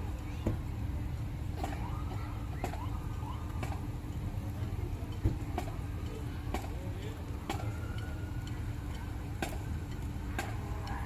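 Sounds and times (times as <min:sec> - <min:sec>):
faint crowd chatter: 0:00.0 - 0:11.0
traffic rumble: 0:00.0 - 0:11.0.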